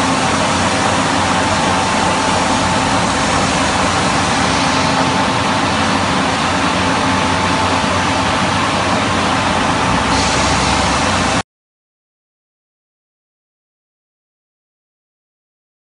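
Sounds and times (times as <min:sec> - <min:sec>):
machinery running steadily: 0:00.0 - 0:11.4.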